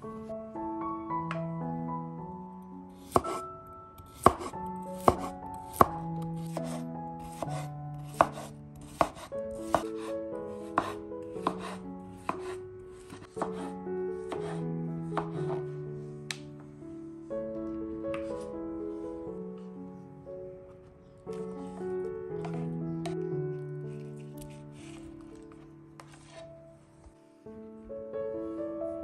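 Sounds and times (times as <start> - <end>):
soft background music: 0.0 - 29.0
knife slicing cucumber on board: 3.1 - 3.4, 4.1 - 10.0, 10.8 - 13.6.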